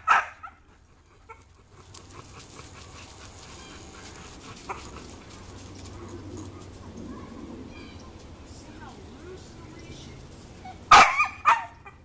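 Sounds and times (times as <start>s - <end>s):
dog barking: 0.0s - 0.6s, 10.9s - 12.0s.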